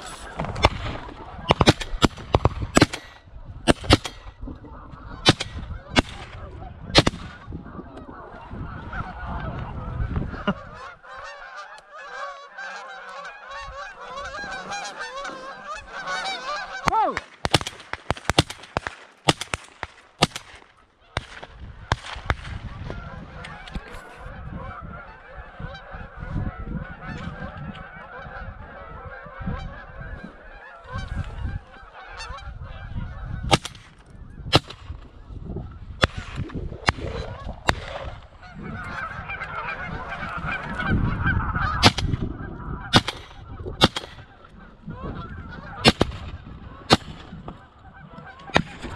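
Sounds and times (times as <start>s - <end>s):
geese honking: 0.0s - 17.2s, 22.7s - 48.9s.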